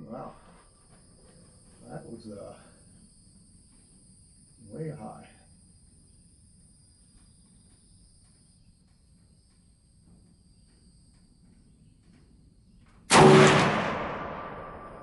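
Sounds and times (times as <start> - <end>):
high insect calls: 0.0 - 13.1
rifle shot with echo: 13.1 - 15.0.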